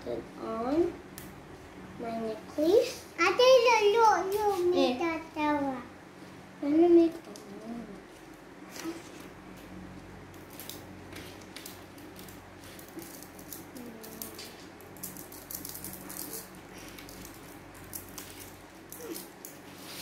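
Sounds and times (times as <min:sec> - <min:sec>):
magnetic balls clicking together: 0:11.4 - 0:19.6.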